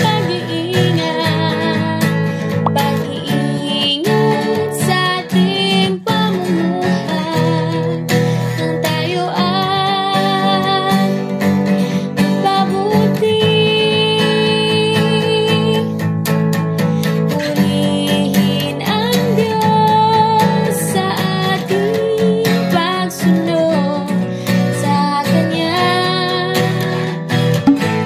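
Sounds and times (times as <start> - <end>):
acoustic guitar music: 0.0 - 28.0.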